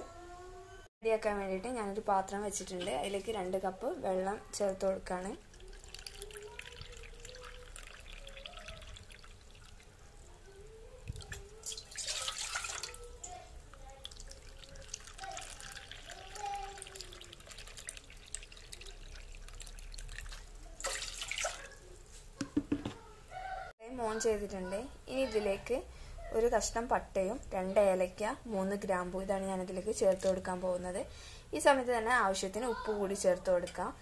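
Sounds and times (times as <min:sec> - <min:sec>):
water poured into metal pot: 0:04.6 - 0:10.0, 0:11.1 - 0:21.9
tap water splashing into cup: 0:16.7 - 0:21.7.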